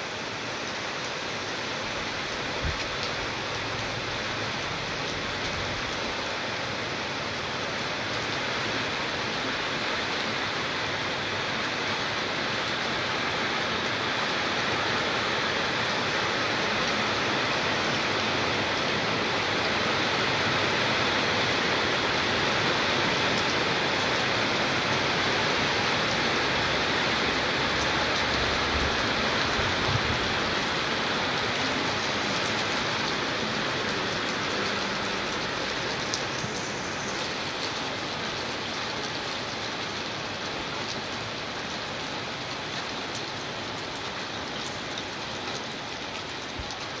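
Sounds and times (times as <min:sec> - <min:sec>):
steady rain falling: 0:00.0 - 0:47.0.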